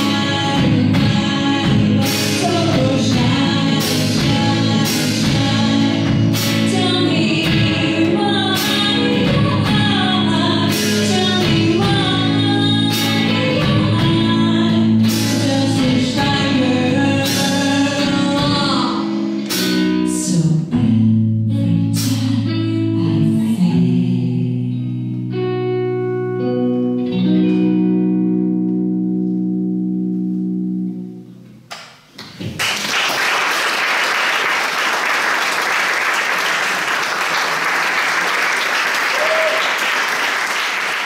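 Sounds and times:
woman singing: 0:00.0 - 0:25.4
electric guitar chords: 0:00.0 - 0:31.7
audience applauding: 0:32.2 - 0:41.0.

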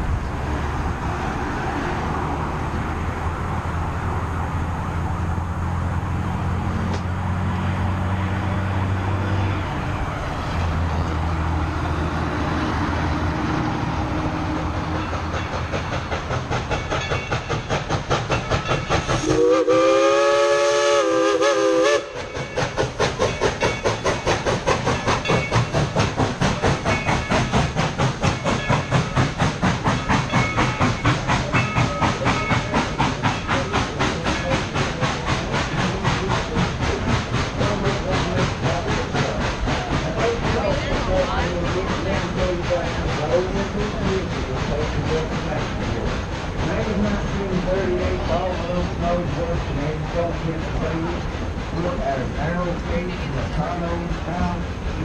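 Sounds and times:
steam locomotive exhaust chuffing: 0:00.0 - 0:55.0
steam whistle blast: 0:19.2 - 0:22.4.

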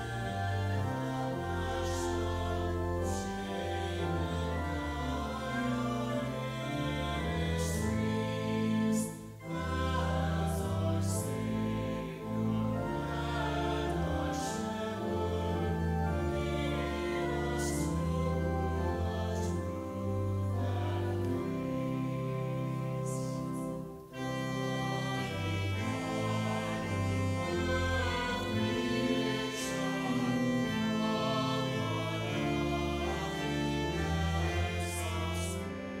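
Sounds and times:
organ: 0:00.0 - 0:36.0
voices singing a hymn: 0:00.0 - 0:36.0.

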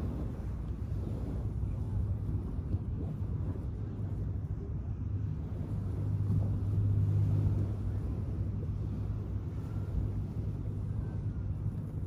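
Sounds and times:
small waves on shore: 0:00.0 - 0:12.0.

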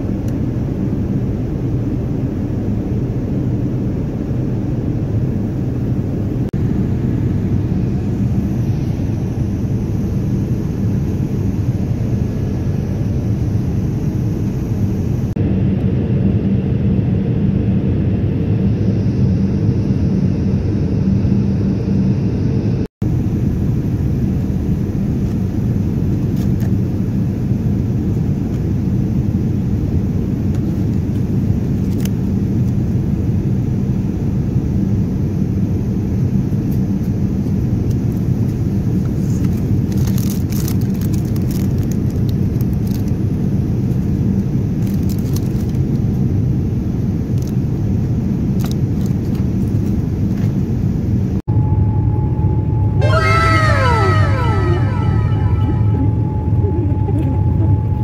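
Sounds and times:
airliner cabin engine rumble: 0:00.0 - 0:58.0
low hum: 0:51.5 - 0:58.0.

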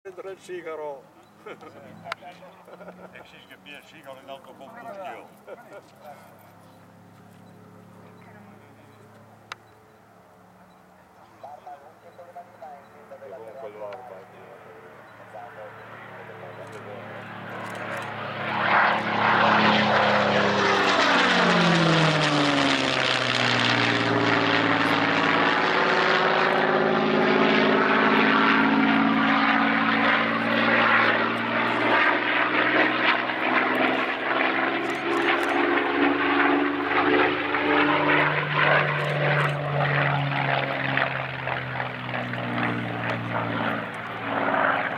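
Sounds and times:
propeller aircraft engine passing: 0:00.1 - 0:44.9
propeller drone: 0:00.1 - 0:44.9.

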